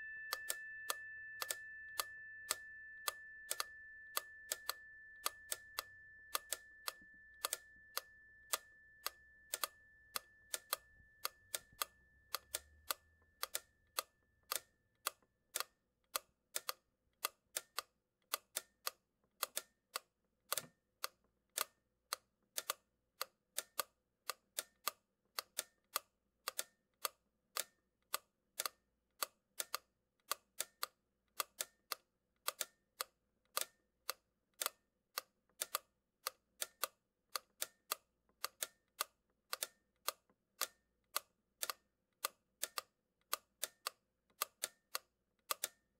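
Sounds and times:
high ringing tone: 0.0 - 14.4.

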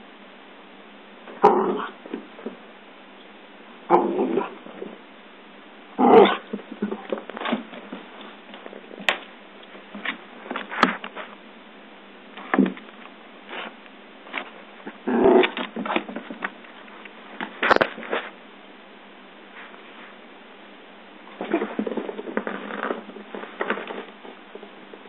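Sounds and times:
small dog vocalizing: 6.0 - 7.0.

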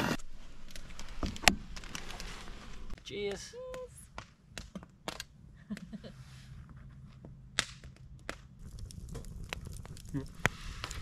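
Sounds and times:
campfire crackling and popping: 2.8 - 6.0, 7.4 - 11.0.

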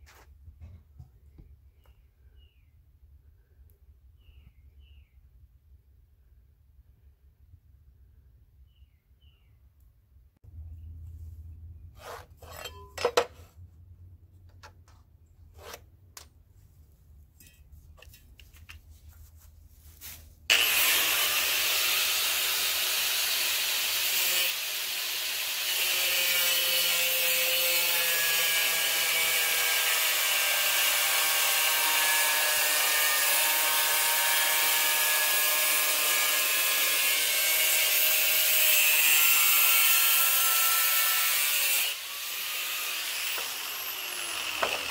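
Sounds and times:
tool handling clicks and knocks: 12.2 - 13.6, 14.4 - 16.4, 17.3 - 18.9
angle grinder cutting: 20.5 - 44.9.

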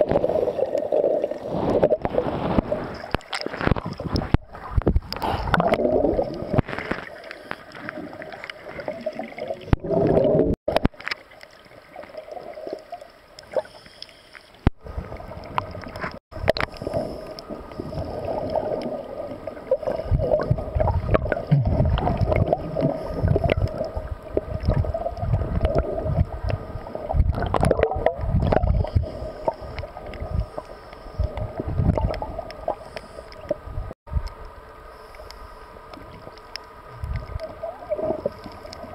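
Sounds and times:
diver exhaling bubbles underwater: 0.0 - 7.2, 7.9 - 10.6, 17.9 - 29.6.

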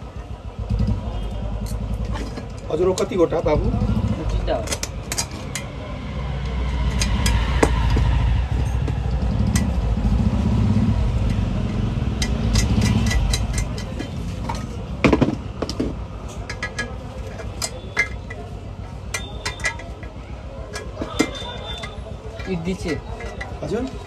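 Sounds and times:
low rumble: 5.7 - 12.7
pliers clicking on metal pan: 12.2 - 14.6, 19.1 - 23.6.

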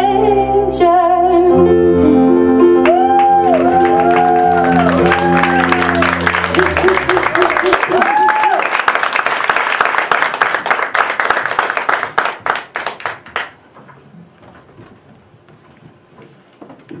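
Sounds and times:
audience applause: 2.8 - 13.6.

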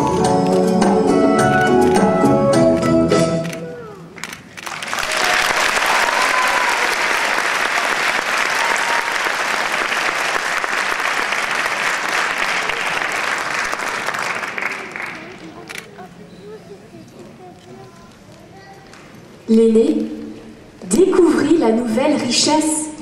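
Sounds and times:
audience applauding: 4.2 - 15.7.

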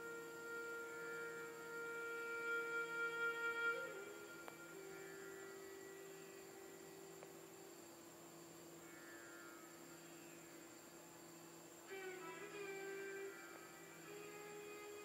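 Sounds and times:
faint soft background music: 0.0 - 15.0.

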